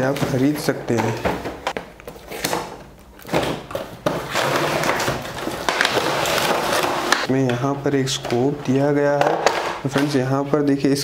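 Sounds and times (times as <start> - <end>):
packaging rustling: 0.0 - 7.3.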